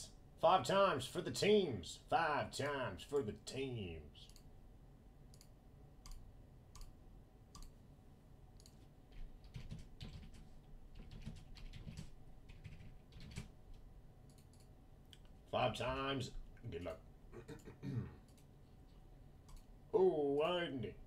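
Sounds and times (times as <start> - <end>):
mouse clicks: 5.3 - 6.9, 7.5 - 7.8
keyboard typing: 8.6 - 14.7.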